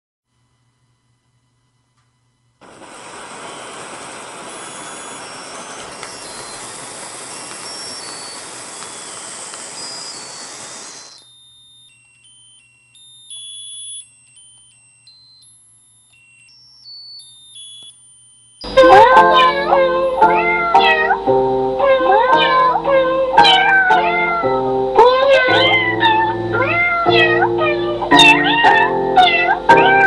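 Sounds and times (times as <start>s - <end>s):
sparkler hissing: 2.6s - 11.3s, 18.6s - 21.8s
tinny electronic beeping tune: 4.5s - 24.5s.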